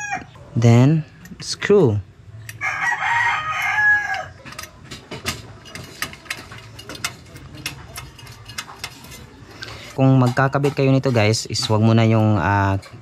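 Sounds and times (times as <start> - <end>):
rooster crowing: 0.0 - 0.4, 2.6 - 4.4.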